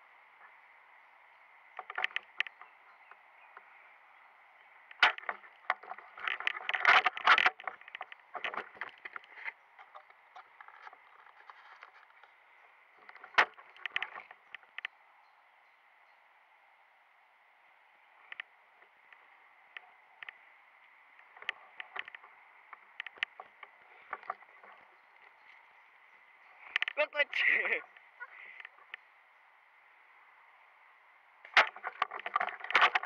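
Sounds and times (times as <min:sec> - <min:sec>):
faint steady hiss: 0:00.0 - 0:33.0
clicks knocks and rustling: 0:01.8 - 0:02.6, 0:04.9 - 0:12.2, 0:13.0 - 0:14.9, 0:31.5 - 0:33.0.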